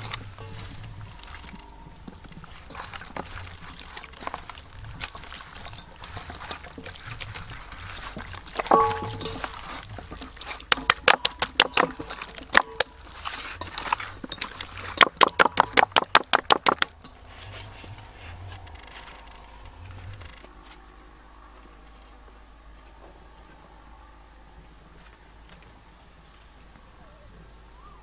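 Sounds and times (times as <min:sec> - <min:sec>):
hands slapping wet chicken: 0:02.6 - 0:13.2, 0:13.8 - 0:17.0.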